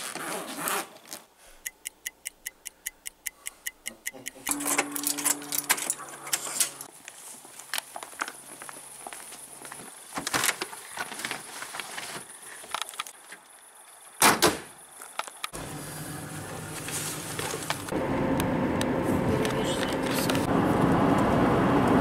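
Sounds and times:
car engine and road noise: 0:15.4 - 0:22.0.

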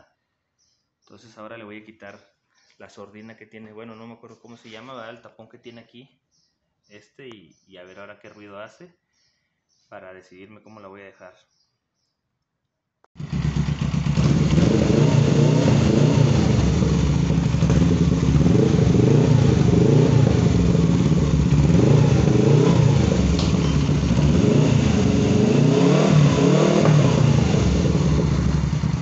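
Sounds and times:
motorcycle engine revving: 0:13.2 - 0:29.0.

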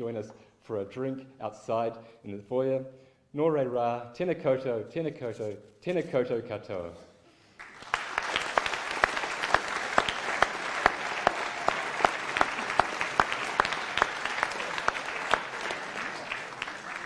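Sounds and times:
audience applauding: 0:07.6 - 0:17.0
close hand claps: 0:07.6 - 0:17.0.

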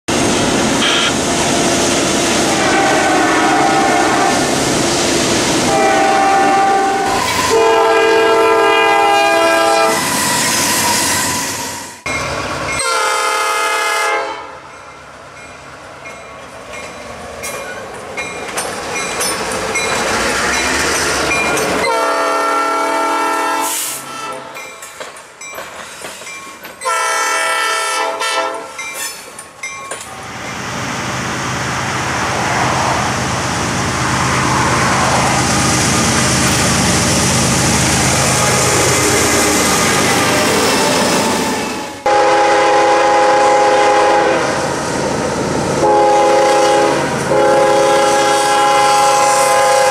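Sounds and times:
train wheel and rail noise: 0:00.1 - 0:49.9
locomotive horn blasts: 0:00.8 - 0:01.2, 0:02.5 - 0:04.5, 0:05.6 - 0:10.0, 0:12.8 - 0:14.6, 0:21.8 - 0:24.6, 0:26.8 - 0:28.7, 0:42.0 - 0:44.6, 0:45.8 - 0:49.9.

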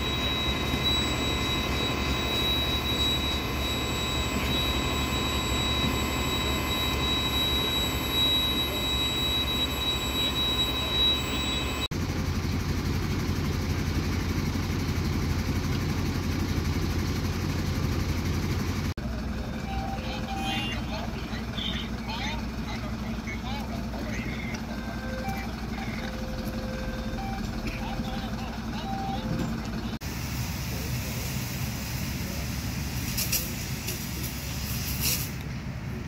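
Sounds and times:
machine high whine: 0:00.0 - 0:11.9
fire engine engine droning: 0:00.0 - 0:36.0.

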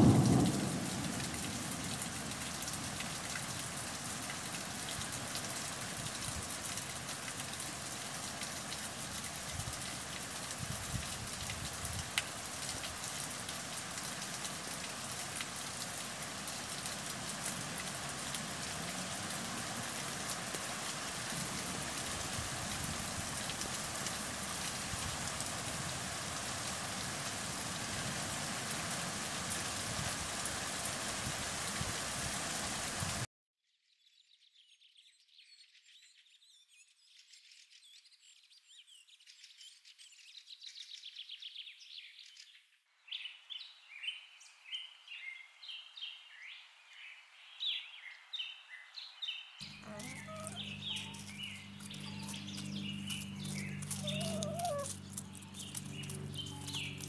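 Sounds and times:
steady rain falling: 0:00.0 - 0:33.3, 0:49.6 - 0:57.0
small birds chirping: 0:34.0 - 0:57.0.

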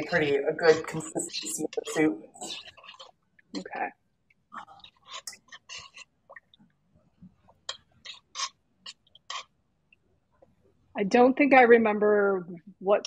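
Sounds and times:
spoon scraping a metal pot: 0:00.0 - 0:03.7, 0:04.7 - 0:06.1, 0:07.7 - 0:09.5.

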